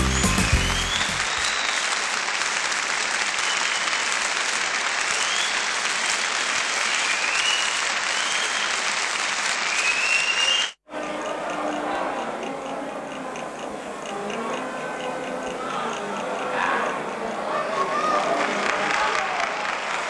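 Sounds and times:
crowd applauding: 0.0s - 10.8s, 15.9s - 20.0s.

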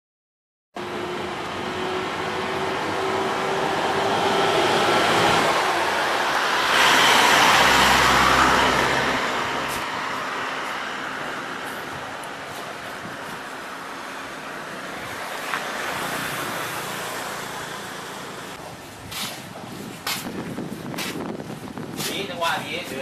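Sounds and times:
passing vehicles rushing: 0.8s - 18.7s.

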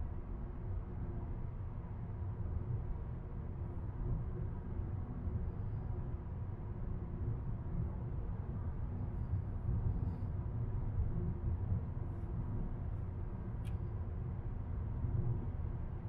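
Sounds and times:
faint sharp click: 13.6s - 13.9s.

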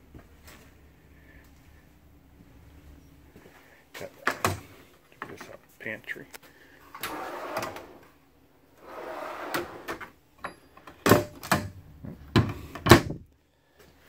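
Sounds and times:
drawer sliding on ball bearings: 6.9s - 8.2s, 8.8s - 10.2s
wooden cabinet doors shutting: 11.0s - 13.3s.

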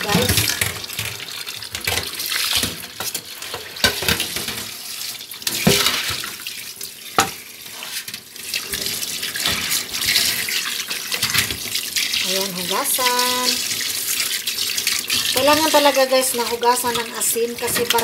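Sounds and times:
tap water splashing into sink: 0.0s - 4.7s, 5.4s - 6.5s, 7.1s - 7.4s, 8.5s - 16.0s
steel bowl knocking against sink: 7.2s - 7.4s.

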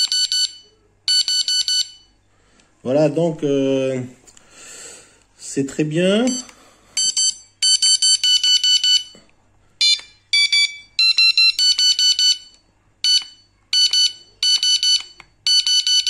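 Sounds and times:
bite alarm rapid beeps: 9.8s - 16.0s.

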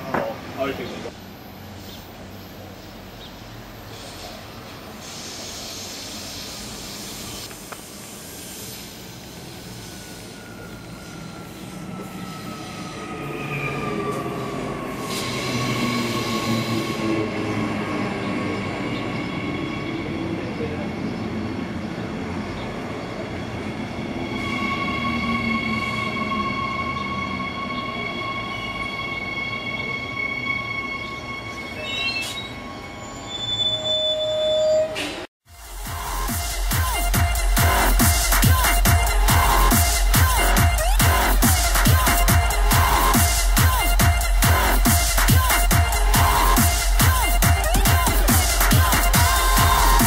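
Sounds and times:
wheel squeal: 23.9s - 35.3s.

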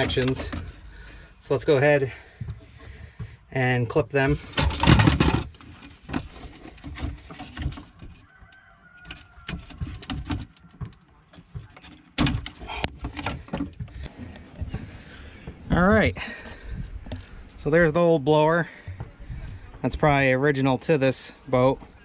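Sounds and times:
hoses rustling and clicking: 0.0s - 15.8s.

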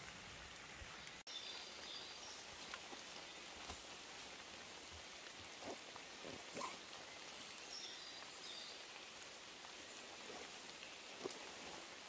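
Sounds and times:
light drizzle hissing: 0.0s - 12.0s.

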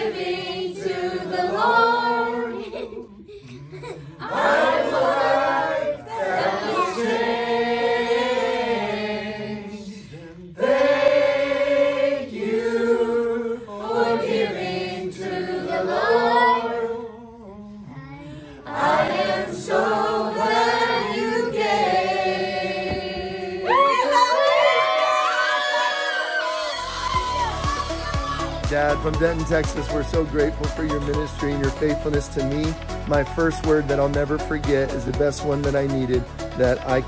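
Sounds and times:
group singing: 0.0s - 24.7s, 25.4s - 30.2s
people cheering and whooping: 23.6s - 29.4s.

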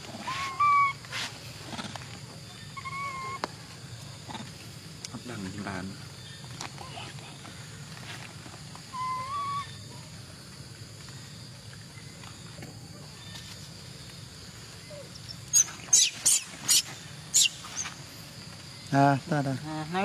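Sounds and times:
monkey shrill screeches: 0.2s - 1.0s, 2.8s - 3.4s, 8.9s - 9.7s.

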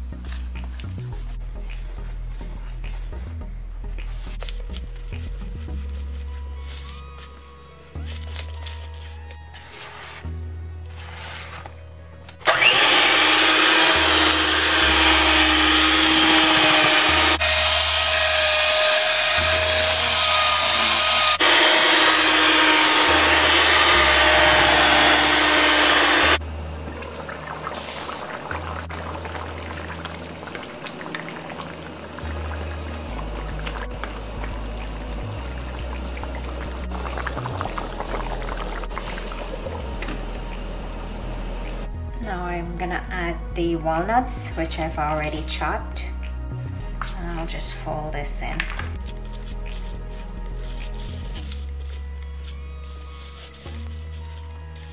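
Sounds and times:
background music with bass: 0.0s - 27.0s, 28.3s - 54.9s
electric hand mixer whining: 12.4s - 26.4s.

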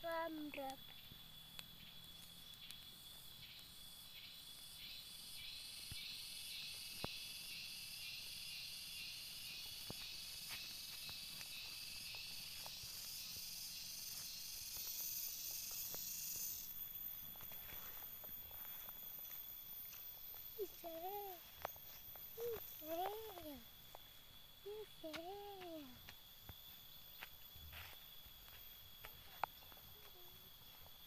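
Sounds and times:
cicada pulsing buzz: 0.0s - 31.0s
high insect drone: 0.0s - 31.0s.

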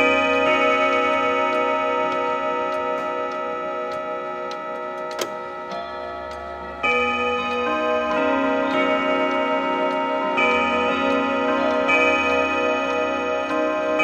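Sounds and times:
clock chiming on gong rods: 0.0s - 14.0s
clock ticking: 0.0s - 14.0s
sharp click: 3.9s - 5.4s.

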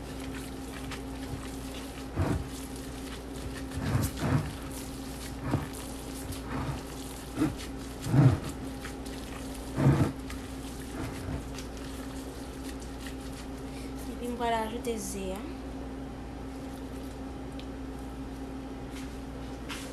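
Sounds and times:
squishing of kneaded meat: 0.0s - 14.3s, 16.4s - 19.0s
steady low hum: 0.0s - 19.9s.

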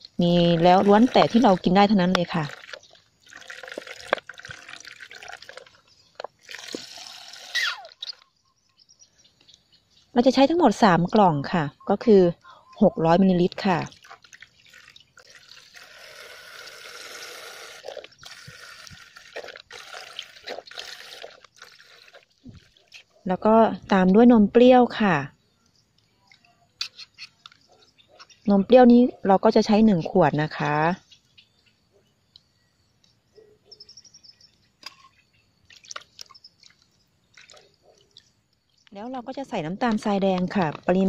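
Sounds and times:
milk pouring and splashing: 0.1s - 8.2s, 13.3s - 23.2s, 35.6s - 38.8s
faint bird chirps: 7.5s - 10.4s, 11.6s - 13.2s, 31.0s - 35.6s.

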